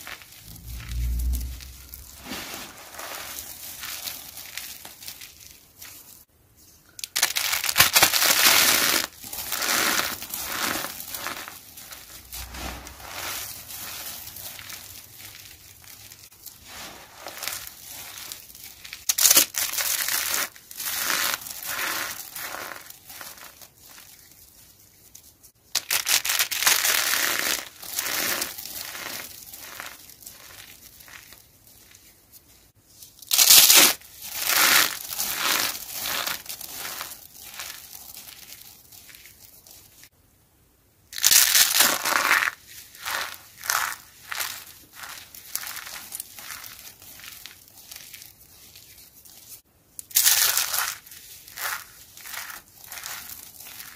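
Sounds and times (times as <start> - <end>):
soap chips crunching in hands: 7.0 - 24.2, 25.8 - 31.4, 41.2 - 49.0, 50.0 - 53.9.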